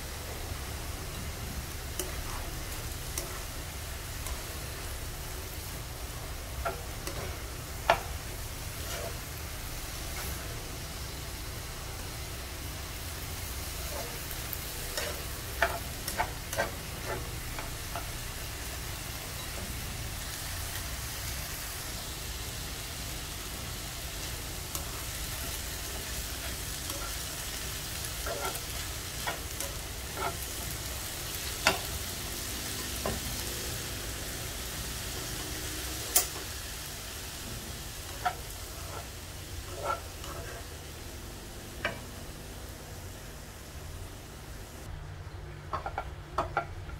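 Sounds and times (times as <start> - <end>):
vegetables sizzling in a wok: 0.0 - 45.0, 45.6 - 46.9
spatula tapping and scraping pan: 6.6 - 8.2, 14.9 - 18.1, 28.2 - 30.8, 39.7 - 40.6, 45.7 - 46.9.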